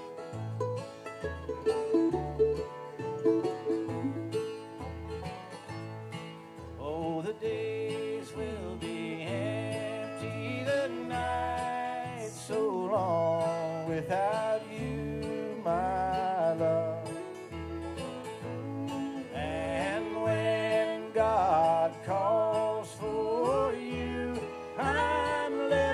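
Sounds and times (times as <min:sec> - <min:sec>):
acoustic guitar: 0:00.0 - 0:25.9
mandolin: 0:00.0 - 0:25.9
upright bass plucking: 0:00.0 - 0:25.9
woman singing: 0:23.0 - 0:25.9.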